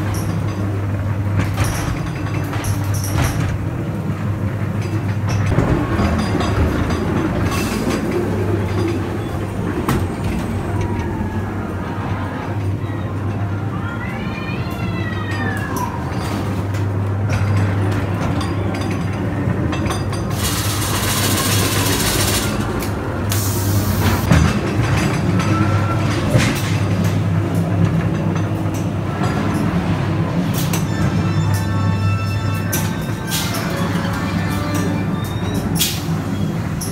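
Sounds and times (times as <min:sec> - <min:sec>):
ride car rumbling along track: 0:00.0 - 0:36.9
loud bursts of hiss: 0:23.3 - 0:24.2.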